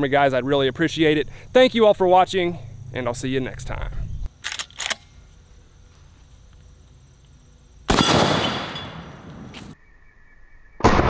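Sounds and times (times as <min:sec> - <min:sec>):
rifle shot with echo: 0:07.9 - 0:09.5.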